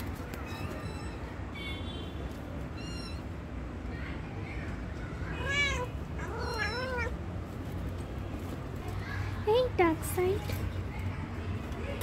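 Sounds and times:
kitten meowing: 0:00.4 - 0:01.3, 0:02.7 - 0:03.3, 0:05.4 - 0:07.2.

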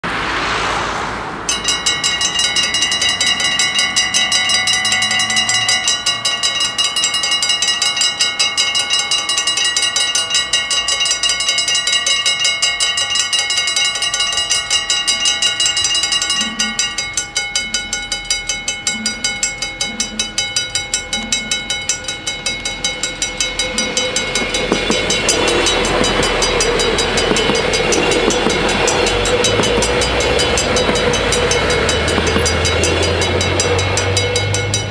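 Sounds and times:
diesel train passing: 0:00.0 - 0:34.9
level crossing bells ringing: 0:01.5 - 0:34.9.

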